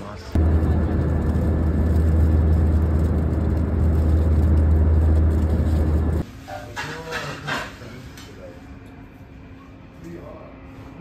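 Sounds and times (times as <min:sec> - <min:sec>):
airliner cabin drone: 0:00.0 - 0:06.3.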